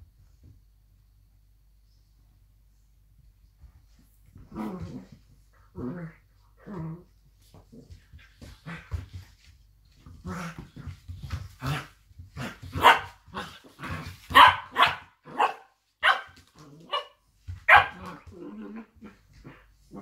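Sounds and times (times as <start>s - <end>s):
dogs barking: 12.8s - 13.2s, 14.3s - 18.0s.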